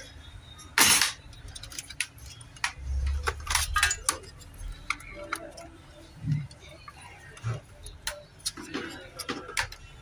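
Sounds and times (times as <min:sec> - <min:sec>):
clicks and clinks of parts: 0:00.8 - 0:05.7.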